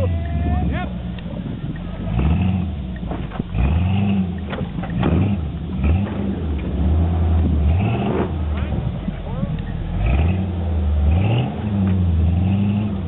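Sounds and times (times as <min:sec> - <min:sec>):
engine revving hard: 0:02.0 - 0:02.8, 0:03.5 - 0:08.9, 0:09.9 - 0:13.0.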